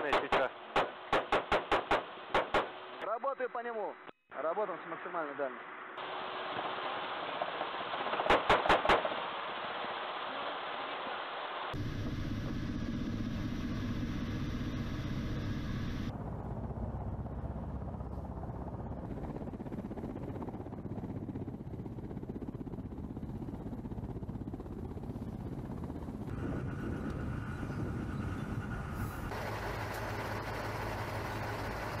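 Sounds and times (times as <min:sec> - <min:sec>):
helicopter engines and rotors running: 0:11.7 - 0:32.0.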